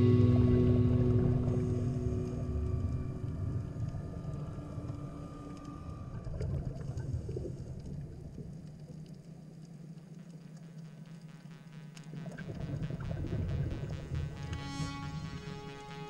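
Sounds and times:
faint steady whine: 0.0s - 16.0s
muffled underwater rumble: 0.0s - 16.0s
faint clicks: 2.7s - 13.0s.

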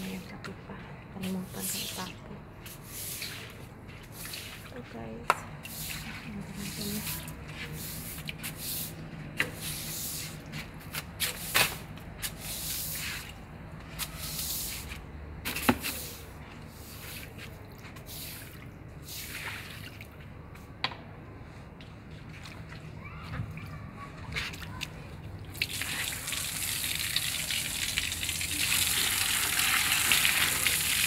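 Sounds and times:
broom sweeping sand on tiles: 1.2s - 4.8s, 5.6s - 19.8s.

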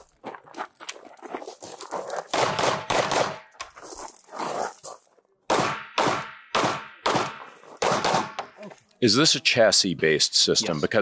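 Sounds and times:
pistol shots with echo: 2.3s - 3.5s, 5.5s - 8.6s.

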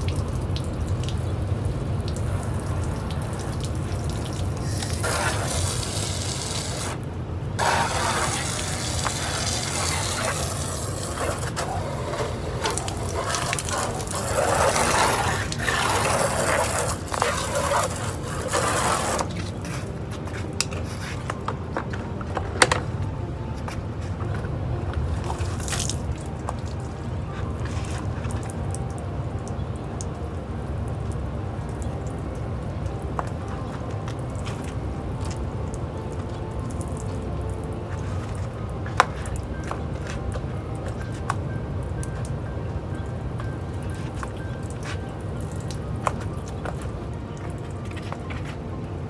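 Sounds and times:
hose spray splashing on truck: 0.0s - 21.5s, 25.2s - 26.9s
low steady rumble: 0.0s - 49.0s.

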